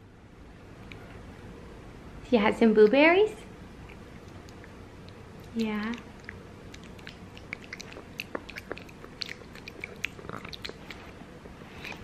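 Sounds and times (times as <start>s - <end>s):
toddler chewing: 3.8s - 12.0s.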